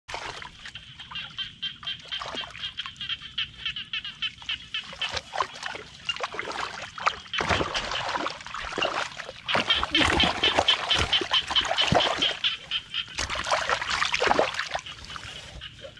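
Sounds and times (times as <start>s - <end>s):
muddy water sloshing and splashing: 0.1s - 15.9s.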